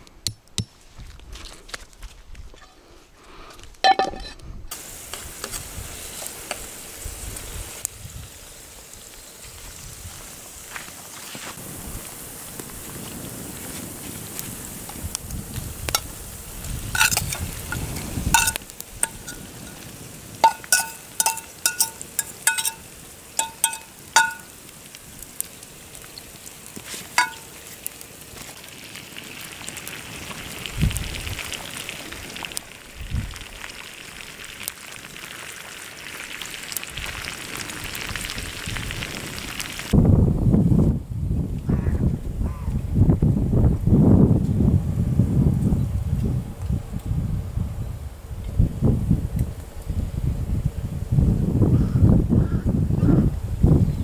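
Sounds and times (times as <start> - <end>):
steady hiss: 4.7 - 40.0
small metallic clinks: 18.4 - 19.8, 20.4 - 24.5, 27.2 - 27.5.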